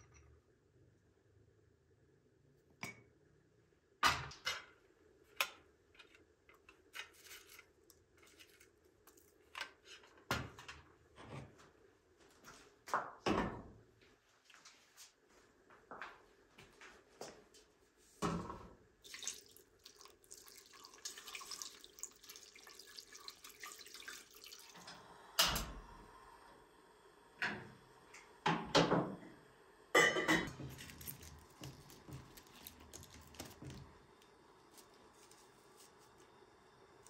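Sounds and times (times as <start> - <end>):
water pouring into a pot: 19.0 - 25.0, 30.5 - 34.1
pots and utensils clanking: 30.0 - 33.8.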